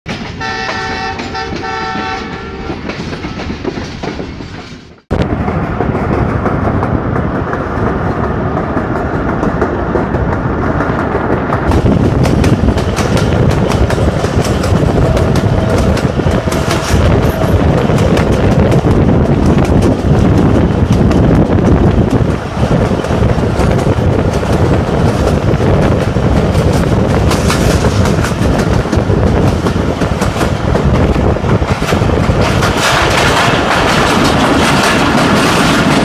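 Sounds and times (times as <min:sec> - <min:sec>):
passenger train rumbling: 0:00.1 - 0:36.0
train wheels clicking over track: 0:00.1 - 0:36.0
multi-tone horn blasts: 0:00.4 - 0:02.8.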